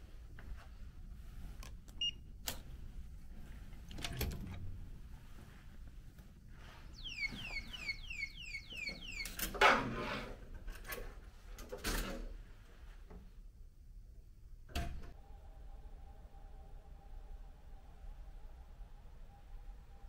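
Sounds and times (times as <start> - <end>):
falling electronic chirps: 7.0 - 9.4.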